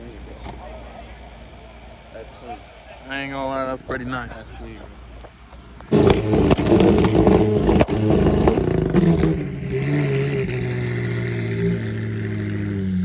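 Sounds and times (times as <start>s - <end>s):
exhaust crackles: 5.0s - 13.0s
sports car engine revving: 5.8s - 13.0s.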